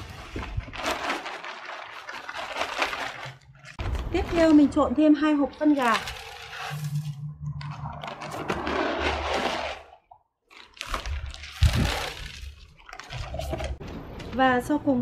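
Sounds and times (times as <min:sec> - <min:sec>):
pellets pouring onto soil: 0:10.8 - 0:13.6.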